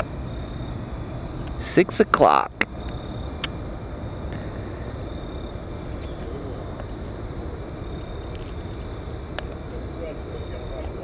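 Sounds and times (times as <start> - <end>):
distant jet engine rumble: 0.0 - 11.0
insect trill: 0.0 - 11.0.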